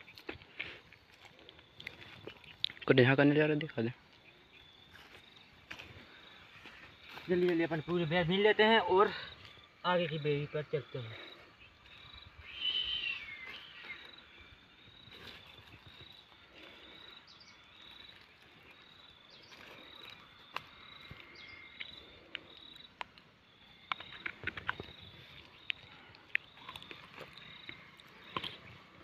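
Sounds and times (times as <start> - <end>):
insect chirring: 0.0 - 29.0
sharp clicks and rustles: 23.8 - 28.8.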